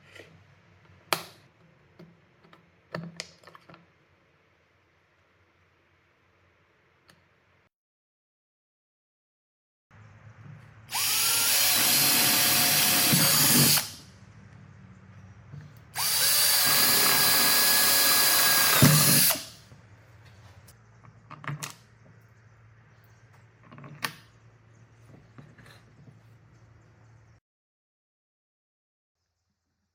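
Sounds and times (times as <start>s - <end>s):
cordless drill boring plastic: 10.9s - 14.0s, 16.0s - 19.6s.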